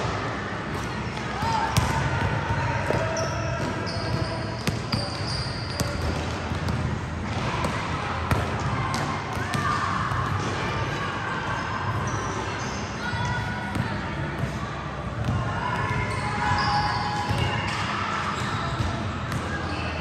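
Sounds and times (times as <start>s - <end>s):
basketballs bouncing on gym floor: 0.7s - 10.6s, 13.3s - 14.6s, 15.2s - 17.8s, 18.4s - 19.6s.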